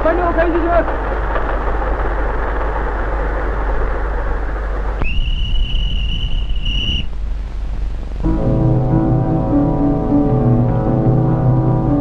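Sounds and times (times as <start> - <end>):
steady rumbling: 0.0 - 12.0
long high whistle: 5.0 - 7.1.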